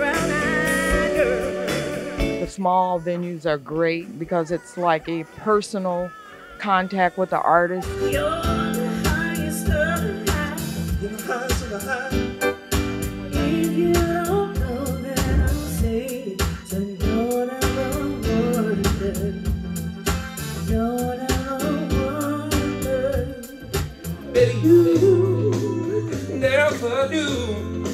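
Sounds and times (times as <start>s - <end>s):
soul band with bass and drums: 0.0s - 2.5s, 7.8s - 27.9s
person singing: 0.0s - 6.6s, 7.9s - 12.4s, 13.3s - 19.5s, 20.6s - 27.8s.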